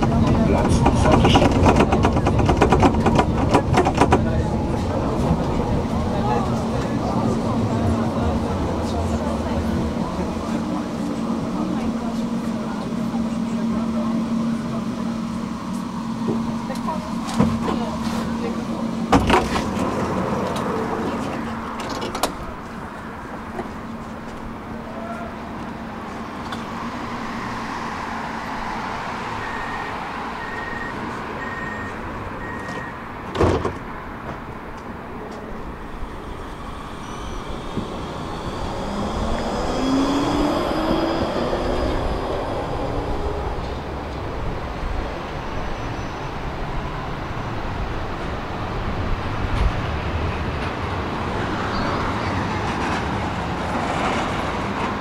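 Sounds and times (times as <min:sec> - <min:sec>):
city traffic noise: 0:00.0 - 0:55.0
tram warning beeps: 0:03.0 - 0:19.1, 0:23.8 - 0:33.3, 0:35.4 - 0:47.2.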